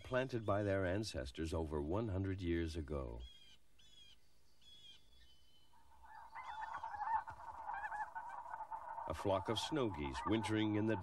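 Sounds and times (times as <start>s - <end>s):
geese honking: 5.7s - 11.0s.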